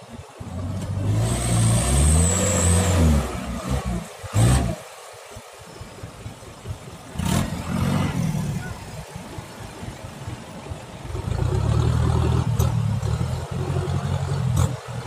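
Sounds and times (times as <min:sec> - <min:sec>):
diesel truck engine pulling hard: 0:00.4 - 0:04.9, 0:07.1 - 0:09.0, 0:11.1 - 0:15.0.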